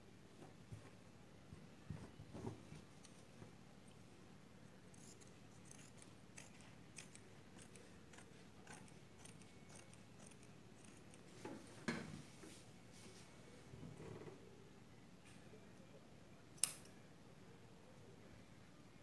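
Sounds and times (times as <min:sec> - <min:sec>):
scissors snipping cloth: 0:05.0 - 0:11.2.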